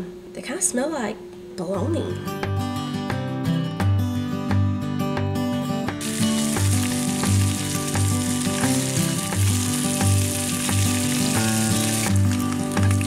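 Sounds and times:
background music with bass line: 0:02.4 - 0:13.0
sausages sizzling in frying pan: 0:06.0 - 0:13.0.

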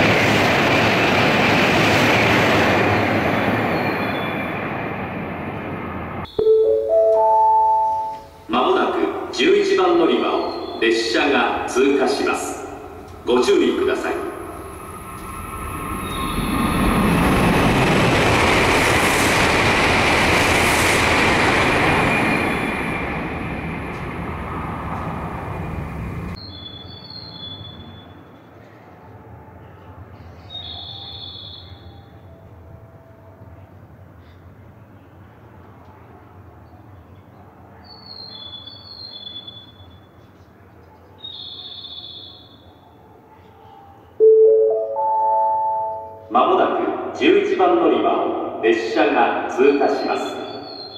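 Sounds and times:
high-speed train rushing past: 0:00.0 - 0:26.4, 0:44.2 - 0:50.9
platform chime rising notes: 0:06.3 - 0:08.5, 0:44.2 - 0:46.3
short high chirps: 0:06.3 - 0:08.5, 0:44.2 - 0:46.3.

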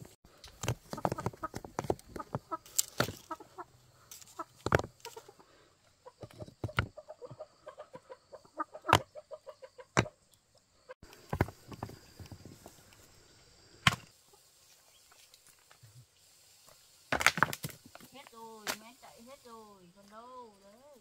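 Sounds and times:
chickens clucking: 0:00.8 - 0:12.7.

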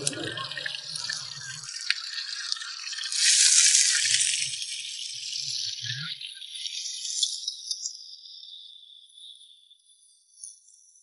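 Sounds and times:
oil sizzling in a wok: 0:00.5 - 0:07.0.

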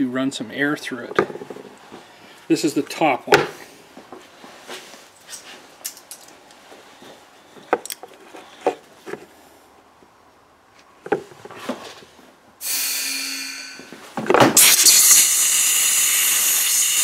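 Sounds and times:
compressed air hiss: 0:12.6 - 0:13.9, 0:14.6 - 0:17.0.

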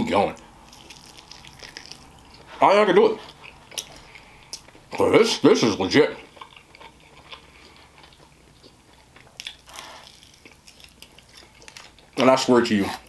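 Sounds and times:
man chewing food: 0:00.4 - 0:02.6, 0:03.2 - 0:05.0, 0:06.1 - 0:12.2.

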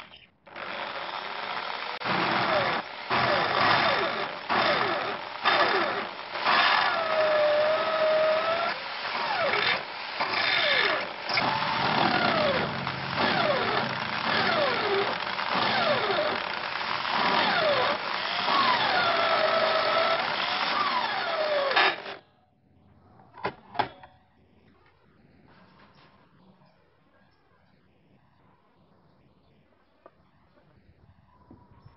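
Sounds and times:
electric drill cutting: 0:00.5 - 0:22.2.

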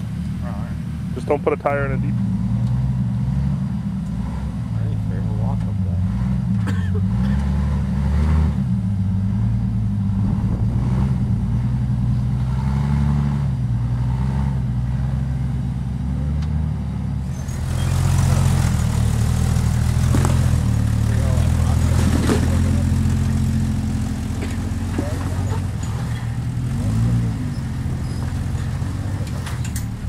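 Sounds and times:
vehicle engine at low revs: 0:00.0 - 0:30.0
close engine running with hiss: 0:17.2 - 0:30.0.

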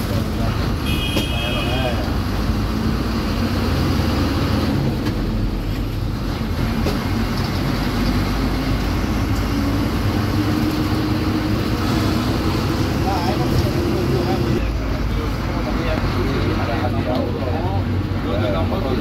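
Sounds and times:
bus engine running: 0:00.0 - 0:19.0
road noise: 0:00.0 - 0:19.0.

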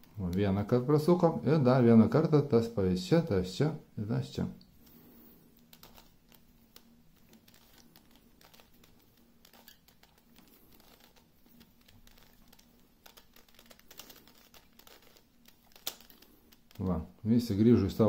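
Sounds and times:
plastic puzzle clicking: 0:05.6 - 0:16.8.

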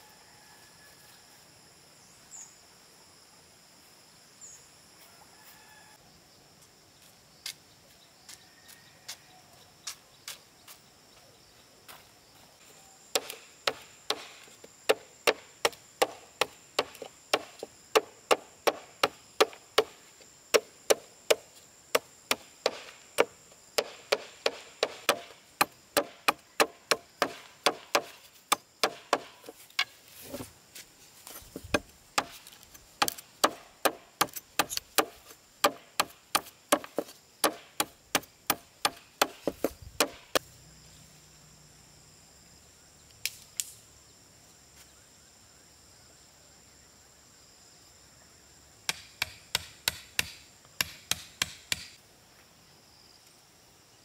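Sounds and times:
blade chopping bamboo: 0:13.2 - 0:20.0, 0:20.6 - 0:29.9, 0:31.7 - 0:40.4.

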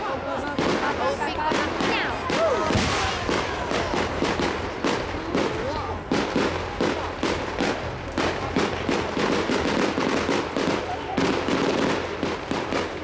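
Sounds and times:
crackling firework stars: 0:00.0 - 0:13.0
crowd voices: 0:00.0 - 0:13.0.

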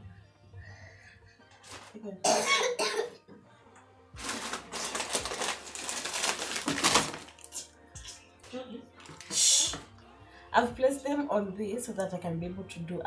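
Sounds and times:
shopping items rustling and clattering: 0:01.6 - 0:02.0, 0:04.2 - 0:07.5
short cough: 0:02.3 - 0:03.2.

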